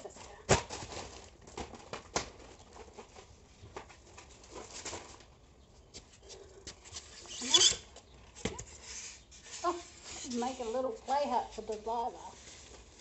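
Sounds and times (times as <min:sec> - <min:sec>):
polystyrene packaging rustling: 0:00.0 - 0:05.6, 0:08.6 - 0:13.0.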